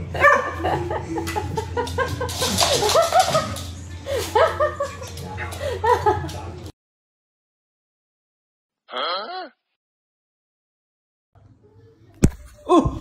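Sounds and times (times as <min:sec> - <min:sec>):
people laughing: 0:00.0 - 0:06.6.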